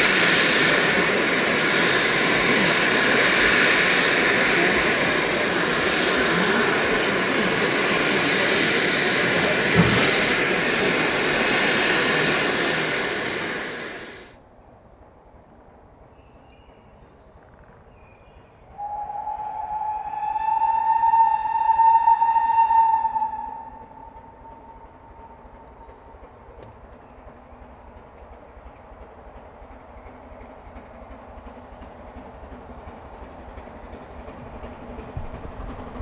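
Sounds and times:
steam hissing from locomotives: 0.0s - 14.4s, 18.6s - 36.0s
open-air ambience: 0.0s - 36.0s
steam locomotive whistle: 18.7s - 26.1s.

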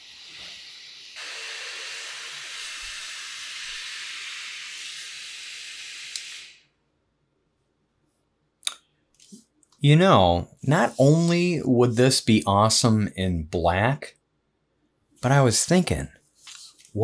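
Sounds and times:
hiss of rushing air: 0.0s - 6.2s.

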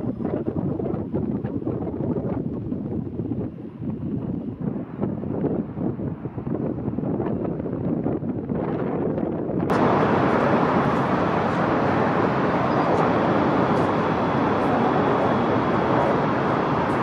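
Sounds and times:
distant city traffic roar: 9.7s - 17.0s.

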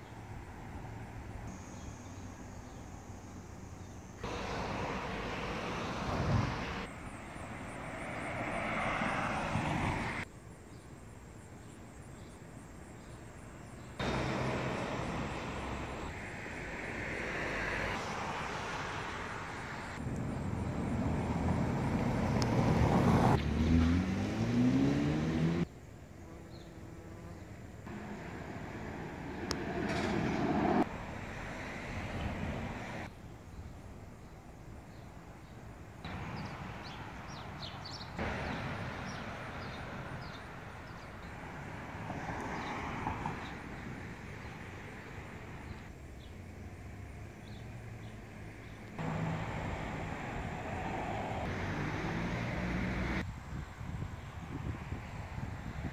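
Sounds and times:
passing road traffic: 0.0s - 25.9s, 27.4s - 55.9s
vehicle engine rising in pitch: 20.2s - 25.7s, 49.0s - 53.2s.

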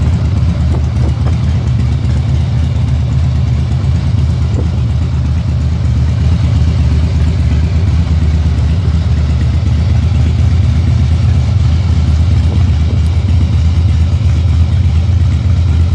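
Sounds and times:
motorcycle engine idling: 0.0s - 15.9s.

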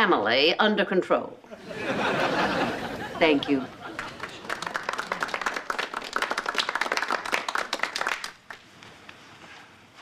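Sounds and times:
crowd applauding: 3.8s - 8.7s.

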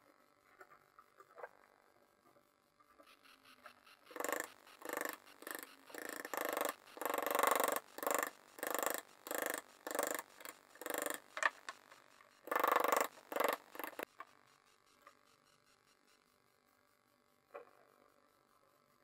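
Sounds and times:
hand tool rasping on wood: 4.0s - 14.1s.

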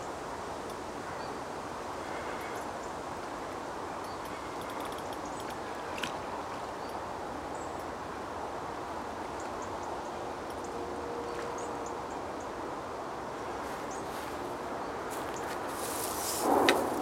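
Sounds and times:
wind rustling through reeds: 0.0s - 17.0s
faint high chirps and ticks: 2.1s - 7.9s.

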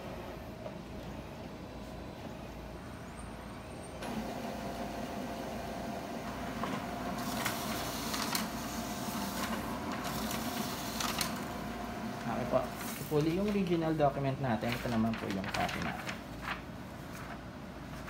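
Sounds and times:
laser copier running: 0.0s - 18.0s
paper feeding hiss and clicks: 6.2s - 18.0s.

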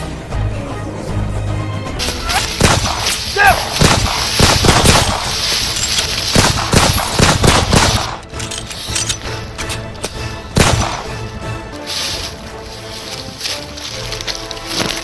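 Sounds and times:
rapid gunfire: 2.6s - 5.4s, 6.3s - 8.2s.

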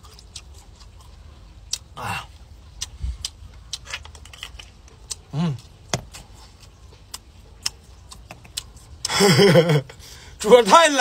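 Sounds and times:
shellfish shell cracking: 3.7s - 5.2s.

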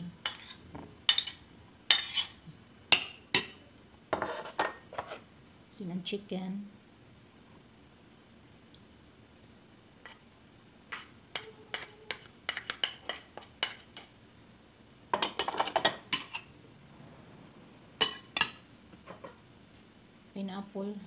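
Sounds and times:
spoon clinking on plate and bowl: 15.2s - 16.5s, 18.0s - 19.4s.

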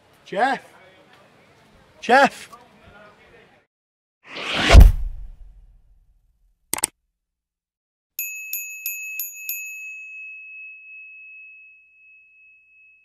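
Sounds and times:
small bell ringing: 8.2s - 13.0s.

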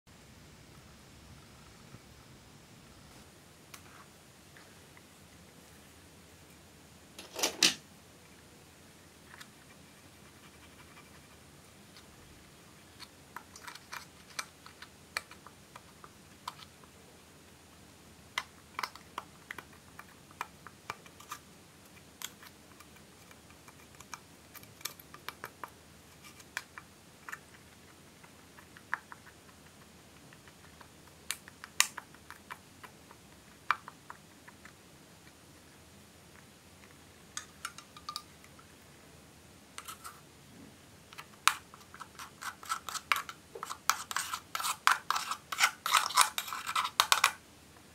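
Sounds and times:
spatula cracking pressed powder: 41.1s - 47.4s.

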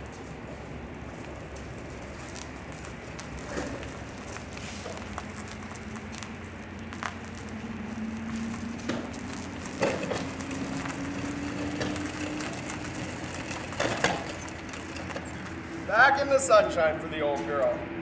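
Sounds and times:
wheels crunching over concrete: 0.0s - 17.8s.

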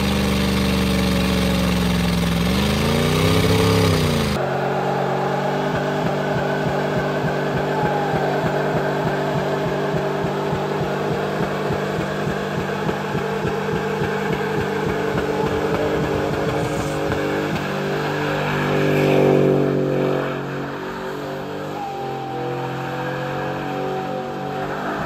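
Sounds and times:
tyres spinning on pavement: 0.0s - 18.9s
truck engine revving: 0.0s - 25.0s.

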